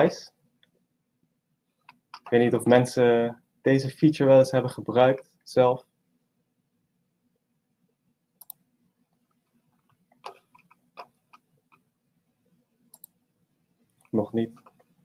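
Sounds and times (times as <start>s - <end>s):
computer mouse clicks: 1.8s - 2.4s, 8.4s - 8.6s, 9.4s - 11.9s, 12.9s - 13.2s.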